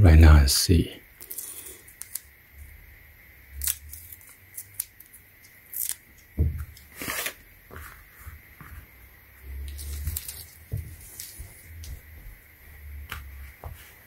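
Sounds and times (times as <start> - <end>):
handling rustles and scrapes: 6.8 - 12.3.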